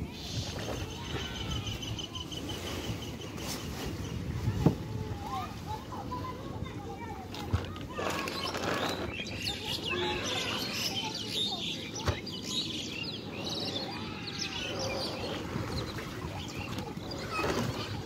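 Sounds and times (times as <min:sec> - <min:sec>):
small birds chirping: 0:07.4 - 0:18.0.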